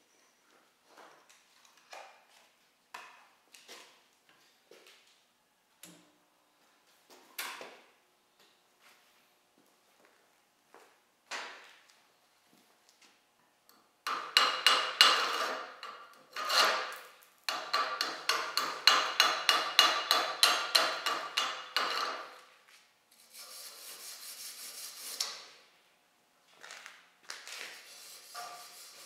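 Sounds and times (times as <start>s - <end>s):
wire brush scrubbing metal: 27.9s - 29.0s.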